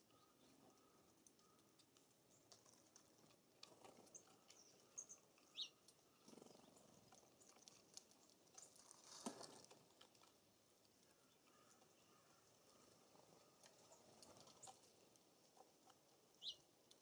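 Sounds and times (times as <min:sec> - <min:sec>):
birds pattering at feeders: 0:00.0 - 0:17.0
high bird chirps: 0:04.6 - 0:06.8, 0:16.4 - 0:16.6.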